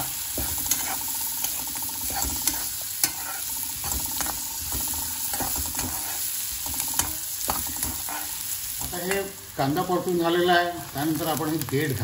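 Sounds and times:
spatula tapping pan: 0.0 - 9.3
spatula scraping pan: 0.0 - 9.8
onion sizzling in oil: 0.0 - 12.0.

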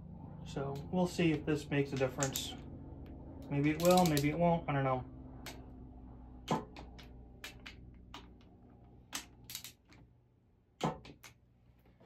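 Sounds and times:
ratchet wrench clicking: 3.7 - 4.4.

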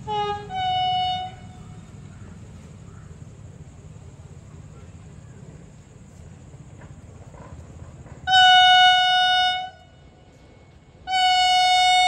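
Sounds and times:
train horn blasts: 0.0 - 2.0, 8.2 - 12.0.

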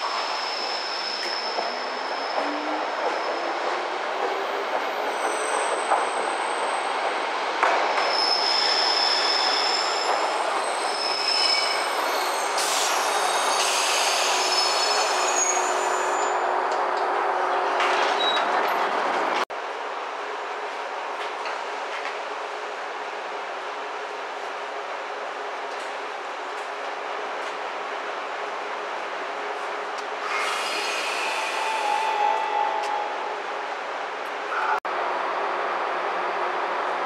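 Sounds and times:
high wheel squeals: 0.0 - 3.7, 8.0 - 16.4.

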